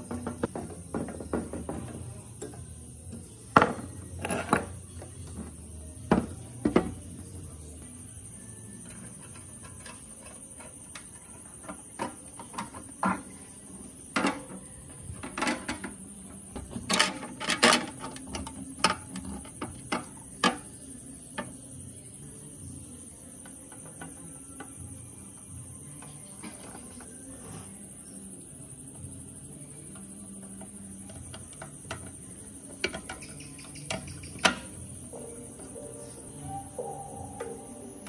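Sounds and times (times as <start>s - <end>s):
metal parts clicking and clattering: 16.6s - 20.6s.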